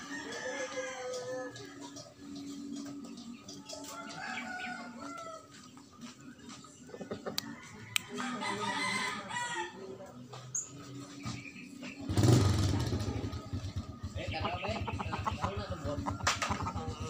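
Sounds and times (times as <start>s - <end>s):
rooster crowing: 0.0s - 1.7s, 3.7s - 5.6s, 7.4s - 9.8s.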